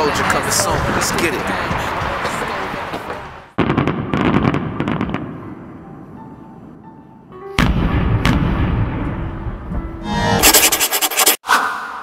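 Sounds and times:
deep firework booms: 3.6 - 5.4, 7.6 - 9.4.

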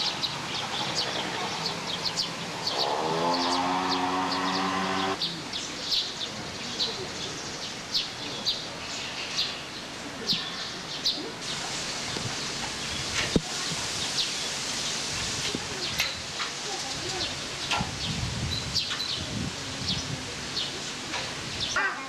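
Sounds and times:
small birds chirping: 0.0 - 22.0
motor drone: 2.8 - 5.2.

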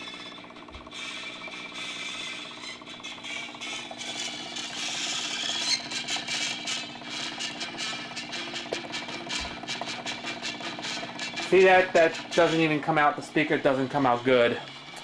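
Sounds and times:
amplifier hum: 0.0 - 15.0
turntable clicking and rattling: 0.0 - 15.0.

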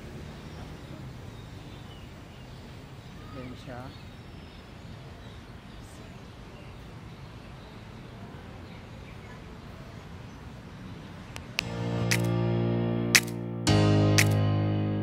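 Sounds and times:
distant city traffic: 0.0 - 13.6
faint bird chirps: 0.1 - 11.2
music: 11.6 - 15.0.

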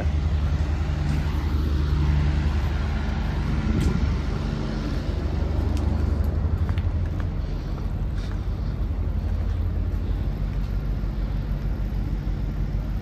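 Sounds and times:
truck engine droning: 0.0 - 13.0.

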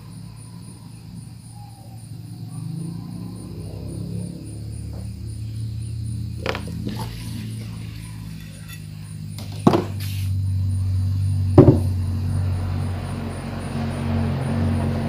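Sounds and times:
sharp knocks on metal: 11.6 - 11.9.

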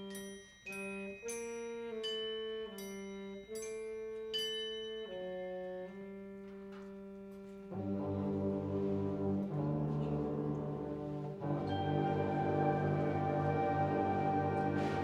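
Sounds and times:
struck bell notes: 0.0 - 6.4, 11.3 - 15.0
concert band playing: 9.8 - 15.0.

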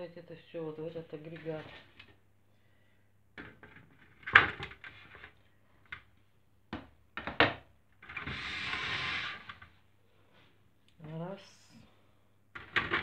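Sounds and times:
plastic trays knocking and clattering: 3.4 - 5.3, 6.7 - 8.3, 12.6 - 13.0.

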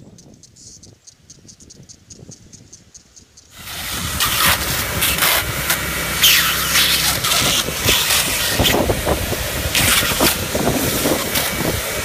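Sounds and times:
shop vac suction and motor hum: 3.6 - 12.0.

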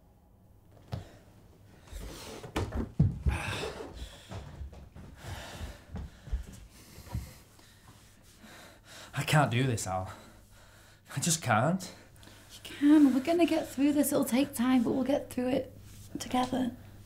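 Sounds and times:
knocks and thuds against furniture: 2.4 - 3.6
man breathing hard and gasping: 3.2 - 9.2.

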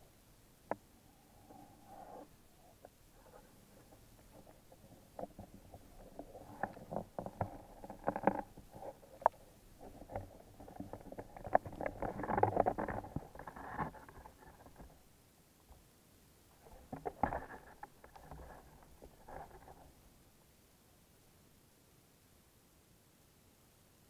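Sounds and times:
clicks and knocks underwater: 2.8 - 15.0, 16.6 - 20.0.

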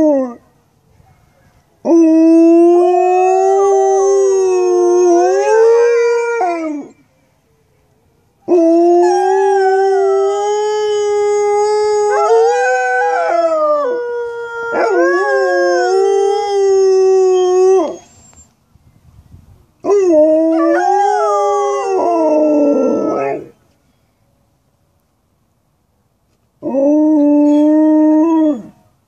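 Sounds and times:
dogs howling: 8.5 - 18.1.

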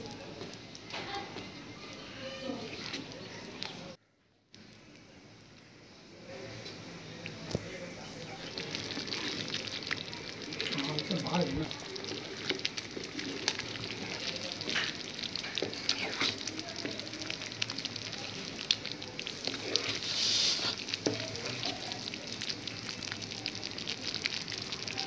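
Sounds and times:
thick gravy bubbling and sizzling: 0.0 - 25.0
short loud hiss: 20.0 - 20.8.

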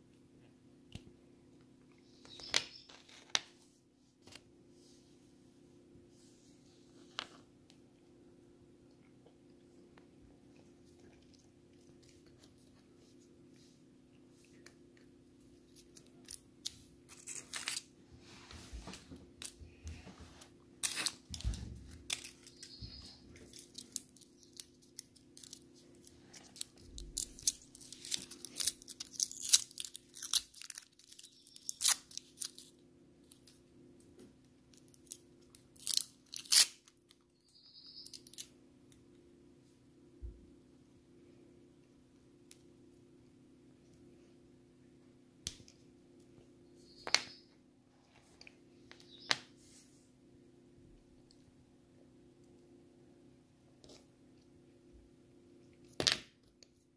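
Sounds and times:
candy wrappers crackling: 15.6 - 17.9, 20.8 - 33.6, 34.8 - 37.2.

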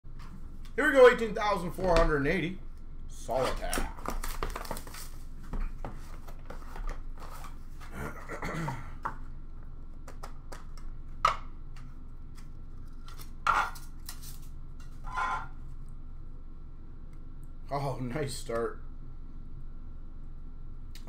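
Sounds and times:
plastic wrap and cardboard rustling: 3.4 - 7.9.

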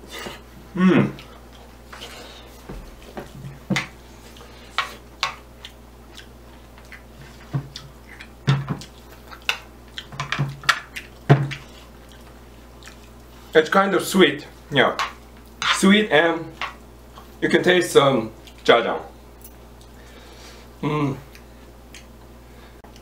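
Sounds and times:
chewing: 4.2 - 10.2, 10.8 - 13.5, 21.3 - 22.2.

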